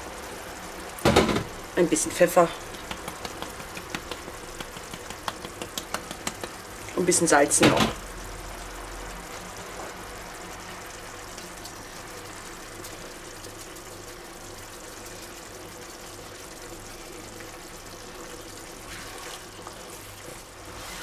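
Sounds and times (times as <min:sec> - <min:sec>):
sauce bubbling and sizzling in pan: 0:00.0 - 0:21.0
spatula stirring sauce: 0:18.8 - 0:21.0.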